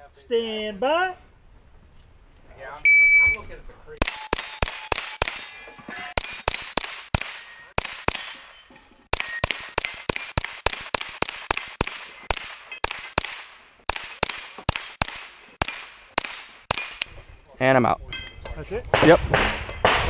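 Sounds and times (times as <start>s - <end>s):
suppressed rifle shots: 4.0s - 17.1s.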